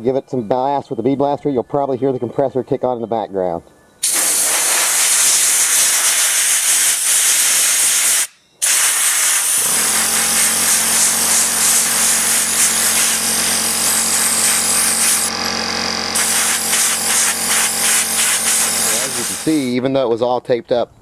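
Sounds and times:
air compressor motor running: 4.0 - 19.8
bead blaster hissing: 4.0 - 19.8.

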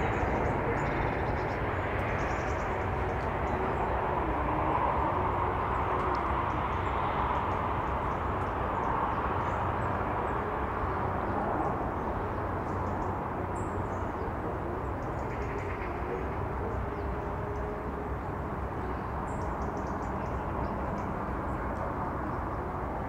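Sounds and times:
distant engine rumble: 0.0 - 23.0.

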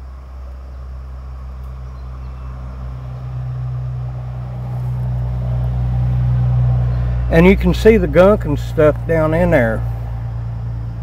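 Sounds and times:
low steady engine hum: 0.0 - 11.0.

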